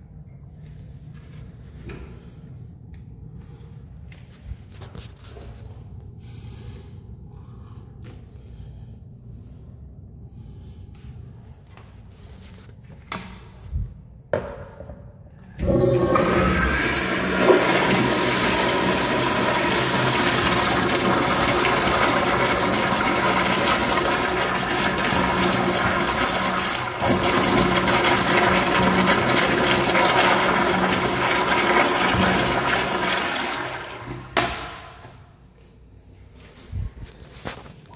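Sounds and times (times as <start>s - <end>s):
toilet flushing: 15.6s - 35.1s.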